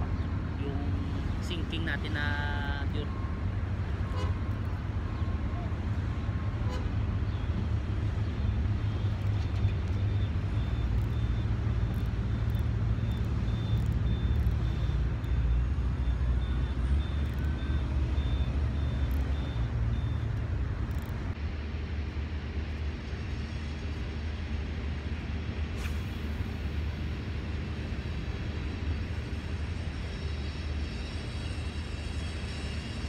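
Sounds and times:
vehicle engines rumbling: 0:00.0 - 0:33.0
reversing alarm beeping: 0:01.5 - 0:04.3, 0:08.4 - 0:21.1.

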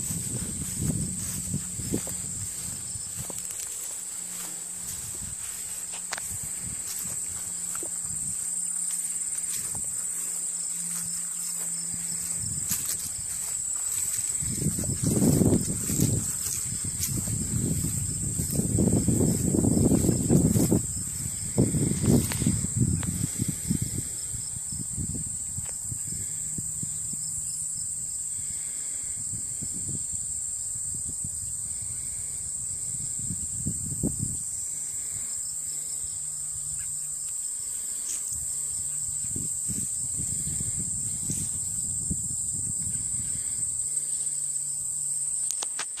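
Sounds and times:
low rumbling on microphone: 0:00.0 - 0:36.7
insect chorus drone: 0:00.0 - 0:46.0.

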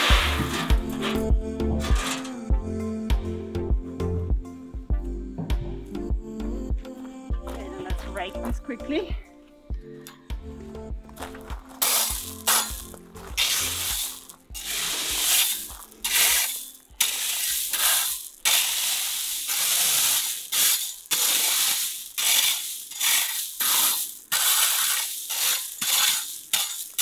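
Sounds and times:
rake crunching through gravel: 0:00.0 - 0:02.4, 0:11.2 - 0:27.0.

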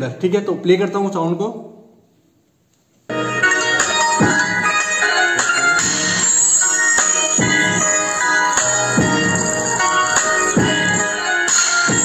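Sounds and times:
loud music through speakers: 0:03.1 - 0:12.0.

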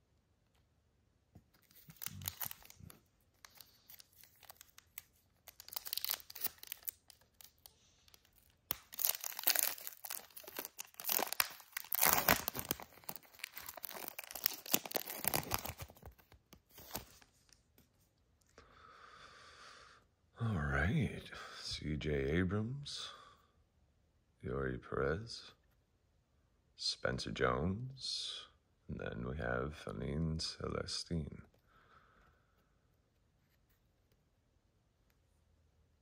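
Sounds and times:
wrapper tearing and crinkling: 0:01.5 - 0:17.2.

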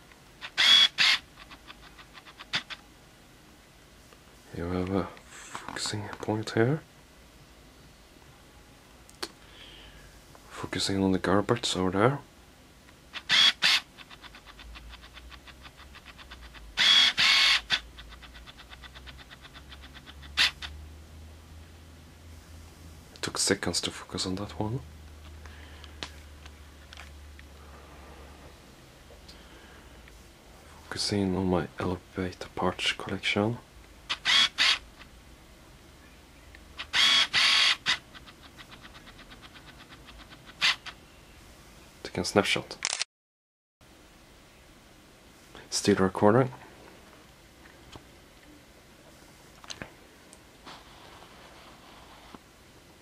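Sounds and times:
focus motor whirring: 0:13.2 - 0:17.8, 0:36.8 - 0:41.0.

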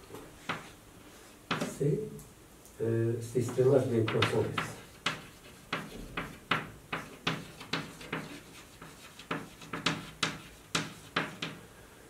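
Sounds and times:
chalk writing on chalkboard: 0:00.4 - 0:00.8, 0:01.5 - 0:01.8, 0:03.4 - 0:11.6.

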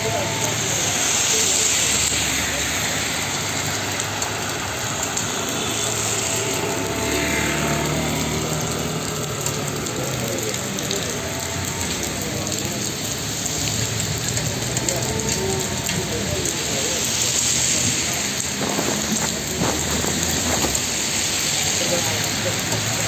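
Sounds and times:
car engines humming: 0:00.0 - 0:23.0
heavy rain on pavement: 0:00.0 - 0:23.0
tyres swishing through water: 0:00.0 - 0:23.0.

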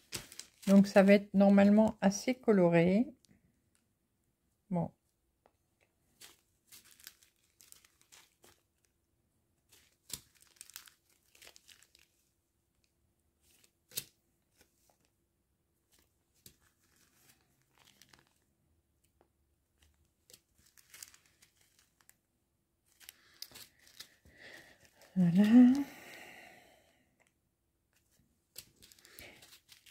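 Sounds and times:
plastic bags crinkling: 0:00.0 - 0:01.3, 0:06.2 - 0:08.9, 0:09.7 - 0:12.3, 0:15.9 - 0:18.5, 0:19.8 - 0:22.2, 0:22.9 - 0:26.3, 0:28.5 - 0:29.9.

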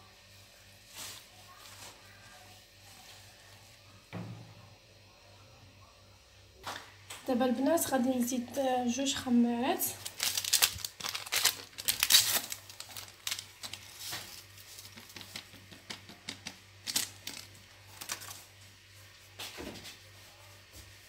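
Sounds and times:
paper sachets crinkling: 0:09.8 - 0:18.6.

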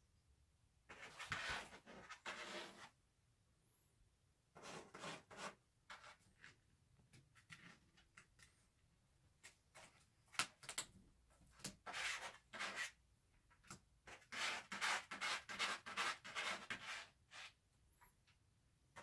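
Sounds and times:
cat scratching cardboard: 0:00.9 - 0:02.9, 0:04.5 - 0:06.6, 0:11.6 - 0:13.0, 0:14.0 - 0:17.6.

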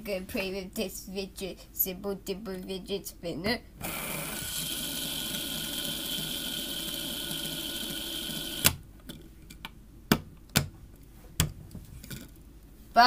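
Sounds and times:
fidget spinner whirring: 0:03.9 - 0:08.7.

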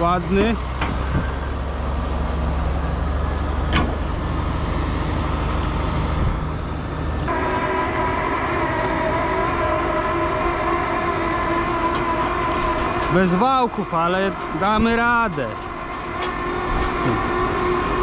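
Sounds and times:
tractor engine running: 0:00.0 - 0:18.0
multi-pitched whine: 0:03.7 - 0:18.0.

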